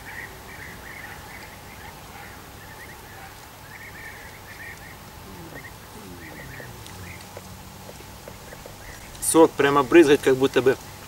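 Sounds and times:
birds chirping: 0.0s - 10.7s
low falling hum: 5.1s - 8.1s.

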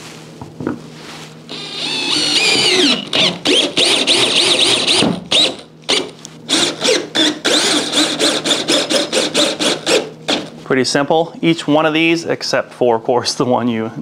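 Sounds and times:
cordless drill motor whine: 1.5s - 10.5s.

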